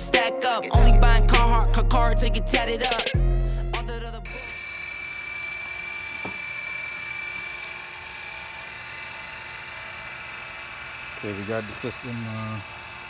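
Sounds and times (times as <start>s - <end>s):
vacuum pump whining: 4.3s - 13.0s.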